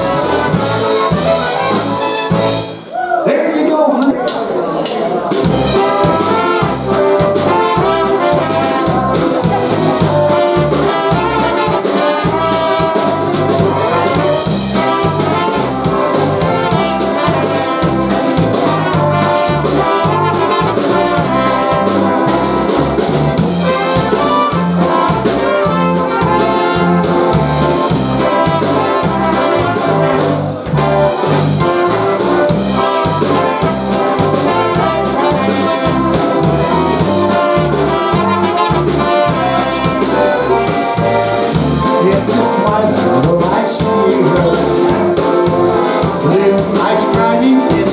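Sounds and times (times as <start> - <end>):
accordion: 0.0 - 2.7, 5.5 - 47.9
oom-pah bass and drum: 0.0 - 2.8, 5.3 - 47.9
polka band playing: 0.0 - 3.0, 3.6 - 47.9
trumpets: 0.0 - 3.0, 5.5 - 47.9.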